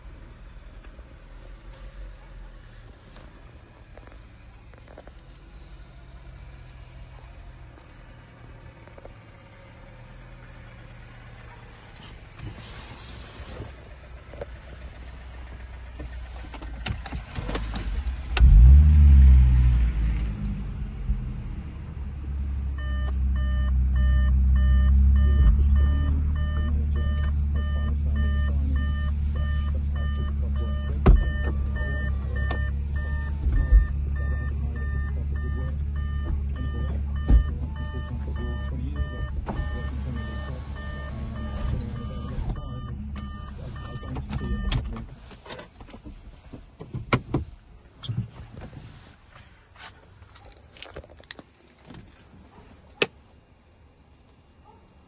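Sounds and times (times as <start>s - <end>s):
car engine starting and idling: 0.0s - 55.0s
dashboard warning chime beeping: 22.8s - 45.0s.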